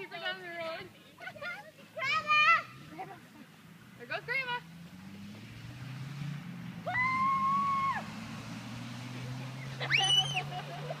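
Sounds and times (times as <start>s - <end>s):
high-pitched calls: 9.8s - 10.5s.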